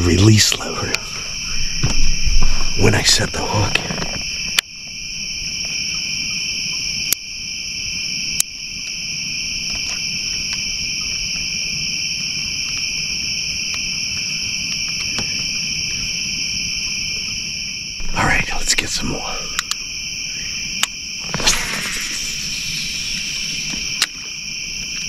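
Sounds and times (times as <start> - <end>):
night insects chorus: 0.0 - 25.0
sharp clicks: 19.4 - 19.9.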